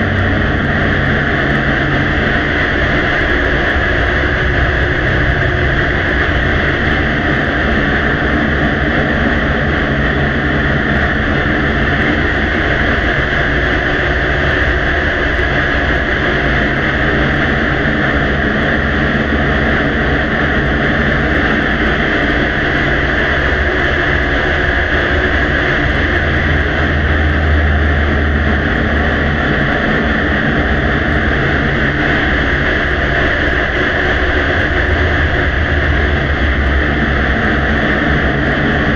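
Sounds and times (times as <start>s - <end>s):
low hum: 0.0s - 38.9s.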